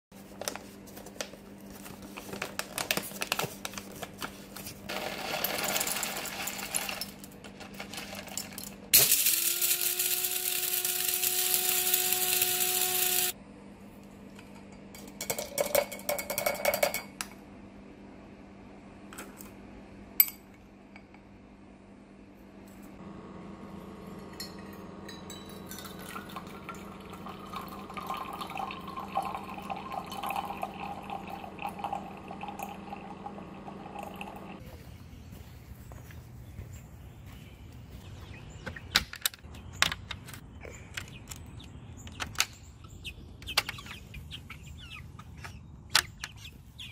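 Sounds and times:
coffee maker humming: 0.4s - 13.4s, 23.0s - 34.7s
coffee grinder grinding beans: 4.8s - 13.4s
grinder and lid clattering: 4.9s - 13.3s
coffee streaming into tumbler: 25.9s - 34.5s.

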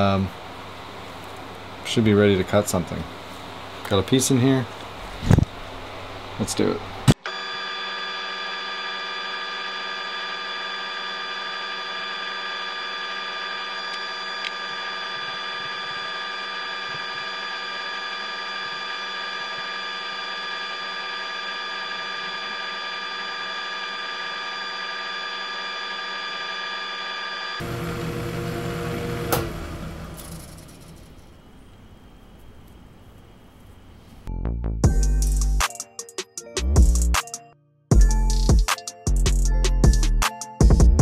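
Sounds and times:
lathe running with whine: 7.2s - 32.0s.

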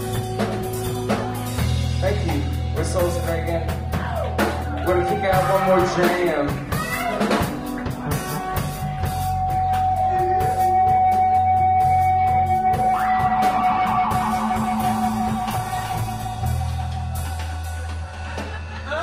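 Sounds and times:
drums and bass: 0.0s - 19.0s
held high guitar note: 11.8s - 17.4s.

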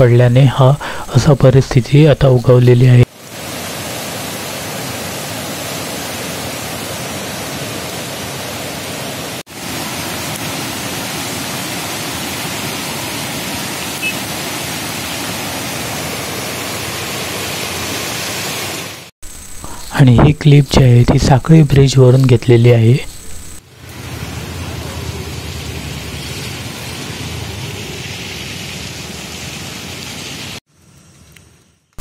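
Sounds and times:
rushing floodwater over rapids: 3.2s - 19.1s.

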